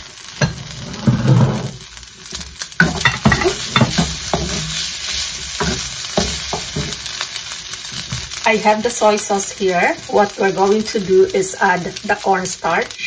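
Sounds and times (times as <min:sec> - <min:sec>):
chicken sizzling in a wok: 0:00.0 - 0:13.0
wooden spoon scraping pan: 0:00.4 - 0:01.9, 0:02.8 - 0:07.0
spoon knocking against pan: 0:02.8 - 0:04.7, 0:05.6 - 0:07.0.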